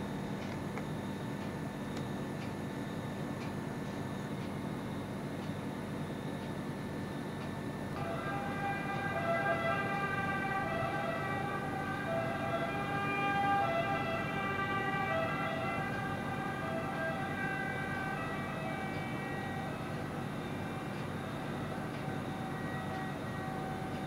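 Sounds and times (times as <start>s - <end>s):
sustained droning tones: 8.0s - 24.0s.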